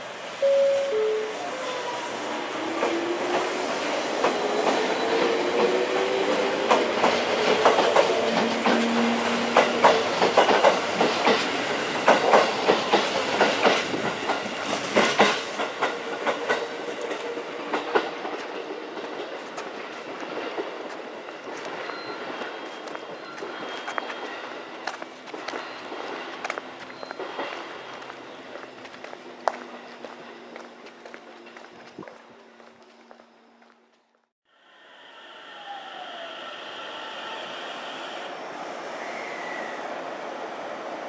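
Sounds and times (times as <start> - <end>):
train wheels clacking on rails: 2.3 - 31.8.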